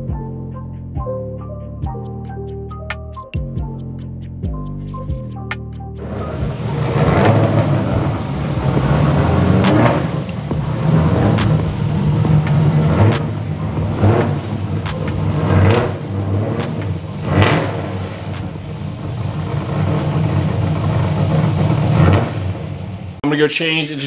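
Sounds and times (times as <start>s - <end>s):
car engine rumbling idle: 6.0s - 23.2s.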